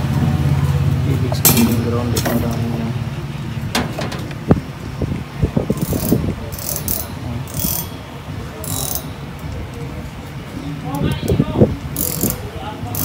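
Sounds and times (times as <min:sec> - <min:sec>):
test leads clicking and rattling: 0:01.4 - 0:09.9.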